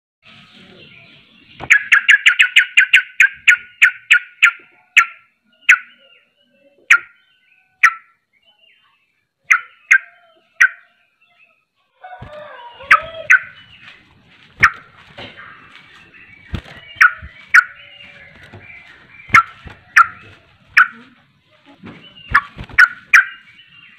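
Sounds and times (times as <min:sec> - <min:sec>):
bird singing sharp notes: 0:00.3 - 0:11.6, 0:12.2 - 0:14.0, 0:14.6 - 0:21.2, 0:21.8 - 0:23.9
bird chattering calls: 0:01.6 - 0:06.2, 0:06.8 - 0:07.2, 0:07.8 - 0:08.2, 0:09.5 - 0:10.9, 0:12.8 - 0:13.9, 0:14.6 - 0:21.2, 0:22.1 - 0:23.9.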